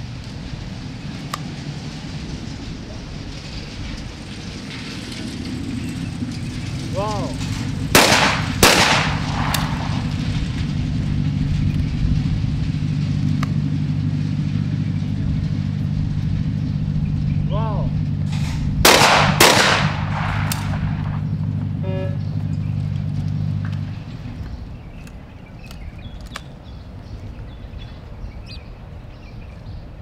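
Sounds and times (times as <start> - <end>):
steady low hum: 0.0 - 30.0
shotgun shots: 7.9 - 10.2, 18.3 - 21.2.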